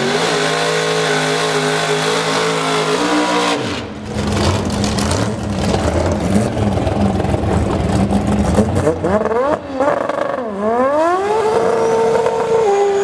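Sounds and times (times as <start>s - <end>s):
drag racing car engine revving: 0.0s - 13.0s
engine running rough at low revs: 3.6s - 9.4s.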